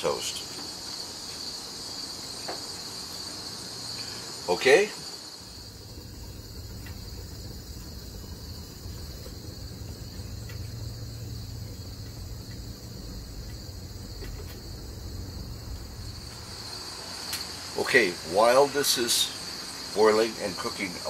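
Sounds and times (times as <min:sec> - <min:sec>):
gas burner rumble: 0:00.0 - 0:21.0
insects chirring: 0:00.0 - 0:21.0.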